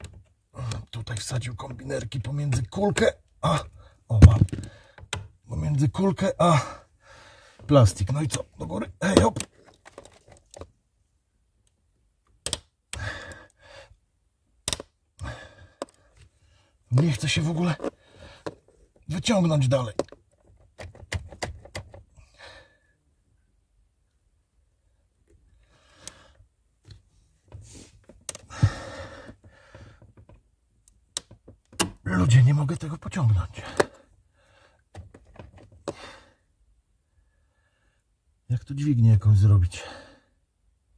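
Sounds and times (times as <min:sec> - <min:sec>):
strained breath: 0:06.9 - 0:07.7, 0:13.0 - 0:14.0, 0:25.6 - 0:26.4, 0:27.6 - 0:30.1
pliers clicking on cable end: 0:12.4 - 0:12.7, 0:14.6 - 0:14.9
pliers clicking on plastic handle: 0:14.6 - 0:14.9.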